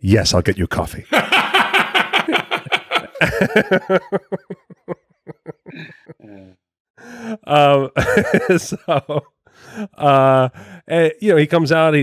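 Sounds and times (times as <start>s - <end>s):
men laughing: 1.1s - 6.4s, 7.2s - 10.2s.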